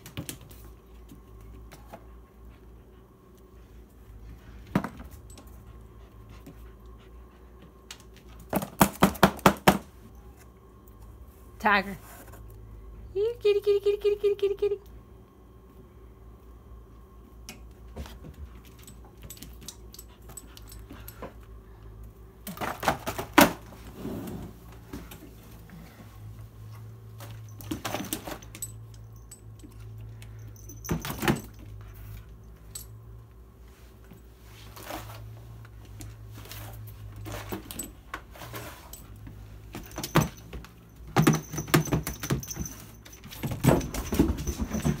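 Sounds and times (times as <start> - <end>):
low steady hum: 0.0 - 45.0
light metallic jingling: 27.2 - 33.0, 38.8 - 45.0.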